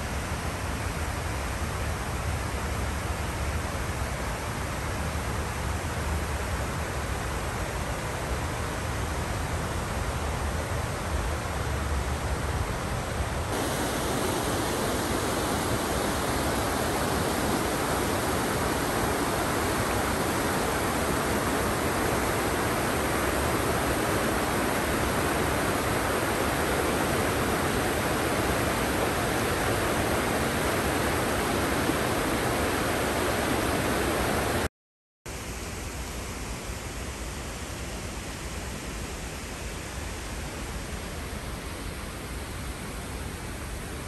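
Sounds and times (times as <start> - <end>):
steady rushing noise: 13.2 - 34.7.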